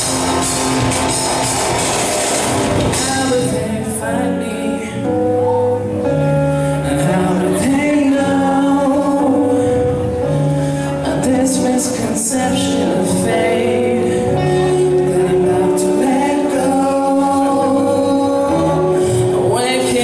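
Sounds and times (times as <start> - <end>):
drum kit: 0.0 - 4.0
electric guitars: 0.0 - 20.0
keyboard: 0.0 - 20.0
person singing long notes: 2.7 - 20.0.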